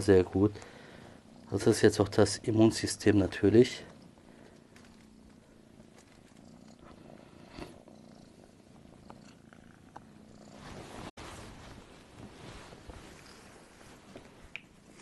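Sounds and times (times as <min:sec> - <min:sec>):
cat purring: 0:00.1 - 0:15.0
sheet rustling: 0:10.6 - 0:14.5.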